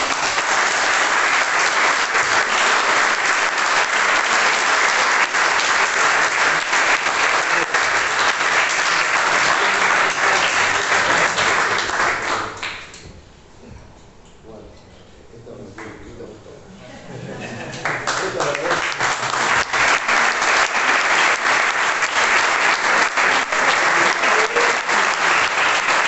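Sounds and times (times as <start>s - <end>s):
applause: 0.0s - 13.0s, 17.7s - 26.0s.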